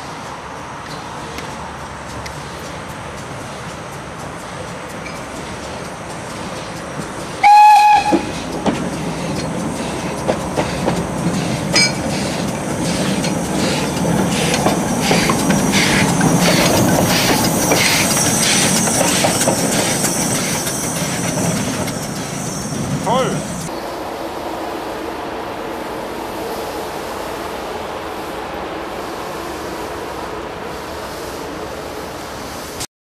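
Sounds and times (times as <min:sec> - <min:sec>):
steam hissing: 0:00.0 - 0:32.9
steam locomotive chuffing: 0:01.2 - 0:23.7
steam locomotive whistle: 0:07.4 - 0:08.4.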